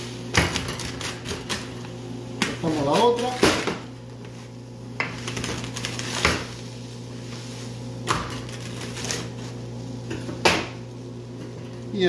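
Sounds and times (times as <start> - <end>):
pizza cutter cutting pizza: 0.3 - 1.8, 2.4 - 3.8, 8.0 - 10.8.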